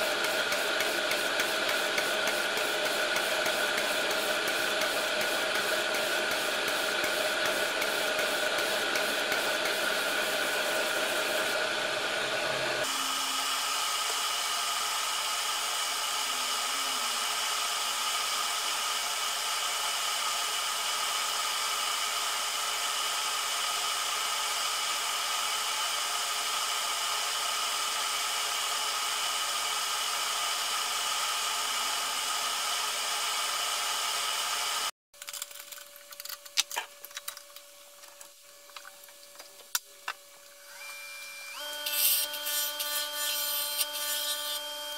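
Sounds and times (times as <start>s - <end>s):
lathe hum: 0.0s - 34.9s
workshop machinery whirring: 0.0s - 44.9s
tool scraping wood: 41.8s - 44.7s.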